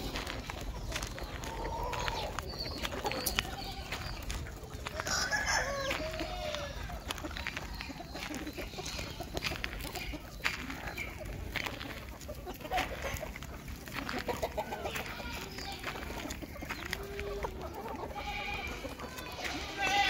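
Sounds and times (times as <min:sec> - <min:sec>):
chickens clucking and calling: 0:00.0 - 0:20.0.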